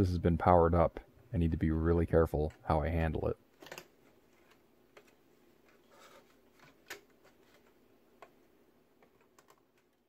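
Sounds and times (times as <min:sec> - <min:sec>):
faint clicks and taps on plastic: 0:06.6 - 0:10.0.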